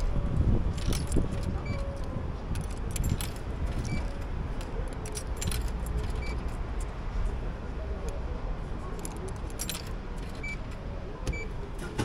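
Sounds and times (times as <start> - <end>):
metallic clinking and jingling: 0.0 - 7.0, 8.9 - 10.6
city traffic rumble: 0.0 - 12.0.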